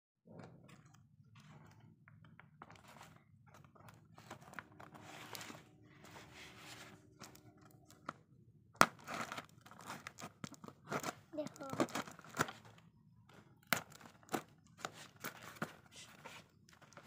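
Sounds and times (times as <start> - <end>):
cardboard box scraping and rustling: 4.8 - 7.1.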